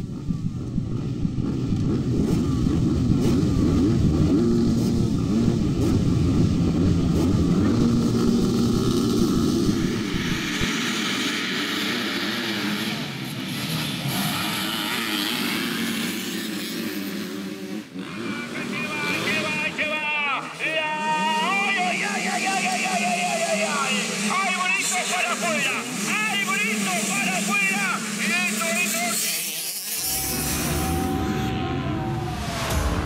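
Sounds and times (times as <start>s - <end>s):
motocross bikes revving: 0.0s - 33.0s.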